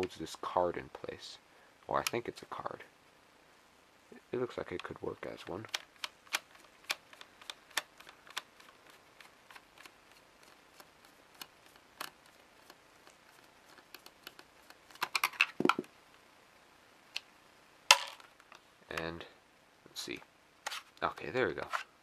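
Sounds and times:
plastic housing handled: 14.9s - 15.9s.

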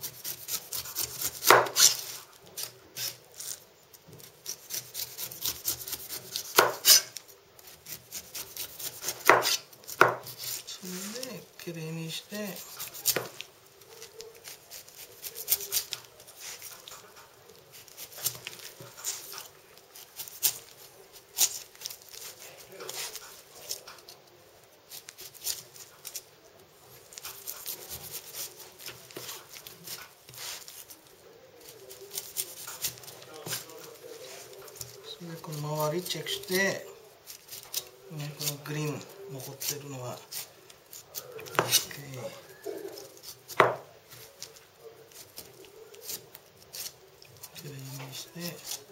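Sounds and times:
knife rasping through pineapple skin: 0.0s - 3.6s, 4.2s - 11.4s, 12.3s - 24.2s, 24.9s - 26.2s, 27.1s - 48.9s
knife tapping cutting board: 9.2s - 10.2s, 43.6s - 43.9s.

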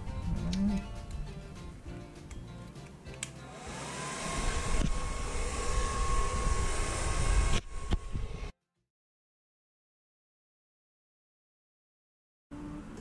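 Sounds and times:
hair dryer running: 3.5s - 8.5s.

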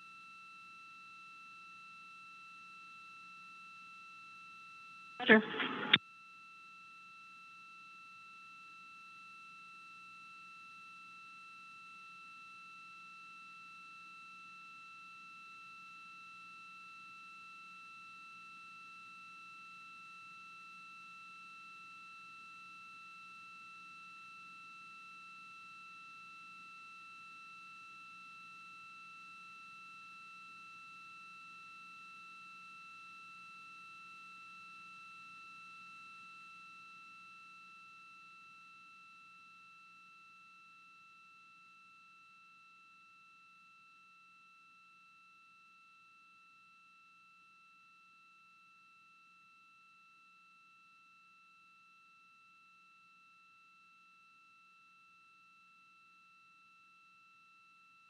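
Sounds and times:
low hum: 5.2s - 6.0s.

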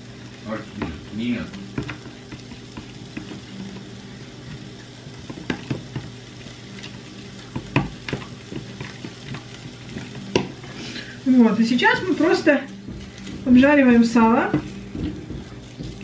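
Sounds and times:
fat sizzling in a pan: 0.0s - 16.0s
utensil knocking against pan: 1.7s - 3.5s, 5.2s - 6.2s, 7.5s - 10.6s, 12.8s - 16.0s.

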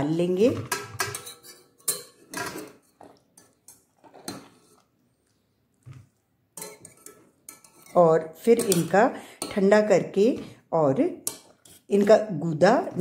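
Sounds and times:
steel tongs clinking on metal: 1.2s - 2.2s.

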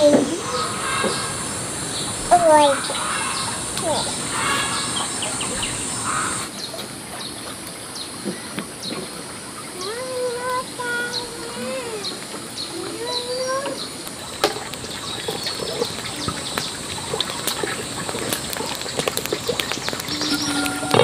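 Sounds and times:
small birds chirping: 0.0s - 21.0s
fowl rising call: 0.3s - 6.5s.

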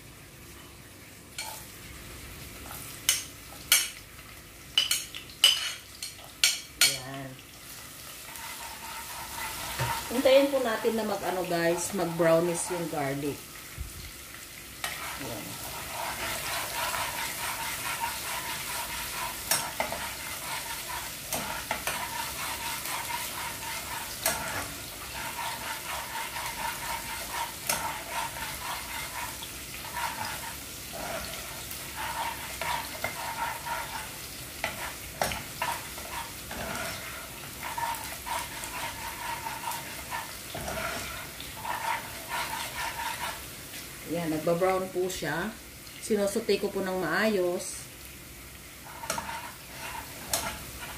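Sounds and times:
garlic sizzling in hot oil: 0.0s - 50.9s
metal spoon scraping pan: 4.8s - 7.0s, 8.2s - 13.2s, 14.8s - 43.5s, 48.8s - 50.9s.

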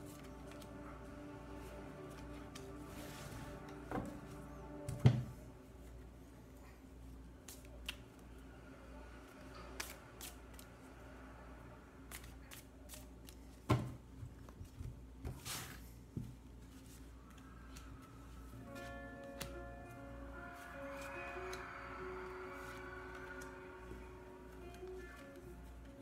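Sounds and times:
low steady hum: 0.0s - 26.0s
cards shuffling: 9.8s - 10.7s, 12.1s - 13.7s
cards swishing on cloth: 12.1s - 13.6s.

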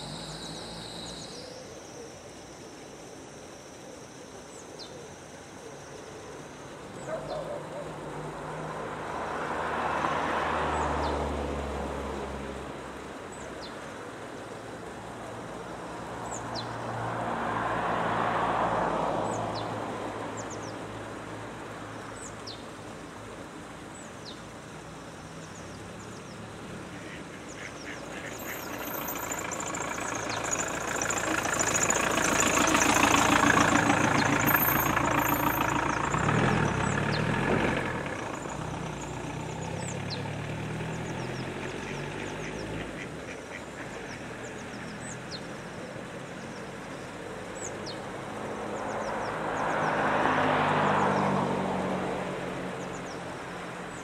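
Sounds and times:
faint high bird chirps: 0.0s - 2.7s, 27.0s - 36.1s
passing vehicle: 0.0s - 2.8s, 3.6s - 54.0s
ducks quacking: 41.8s - 44.3s.

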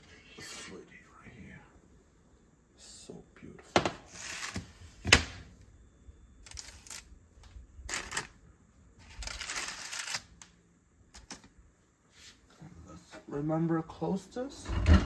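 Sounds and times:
paper rustling and scraping: 9.0s - 10.3s.

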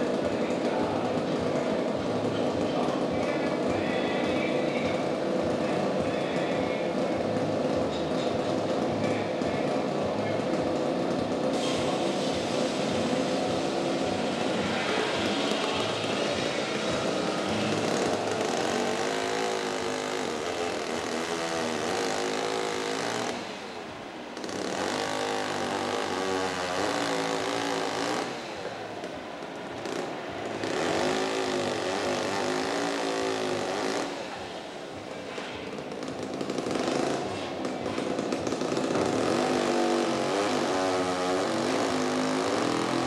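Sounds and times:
sawmill saw cutting wood: 10.8s - 23.7s, 24.4s - 28.8s, 29.8s - 34.6s, 35.4s - 43.0s.

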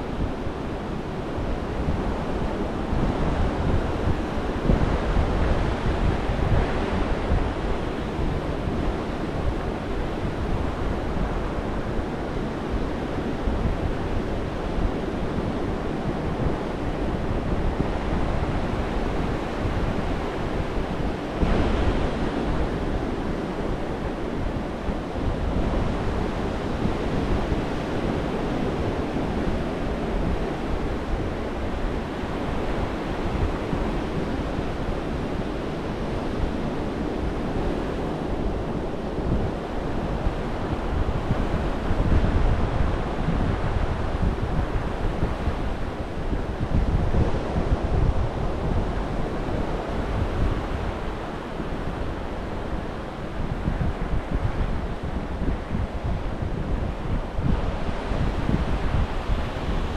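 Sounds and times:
wind rumbling on microphone: 0.0s - 59.9s.

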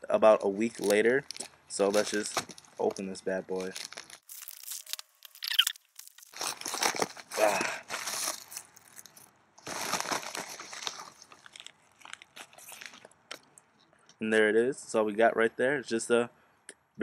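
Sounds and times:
plastic mailer crinkling: 0.4s - 13.1s.

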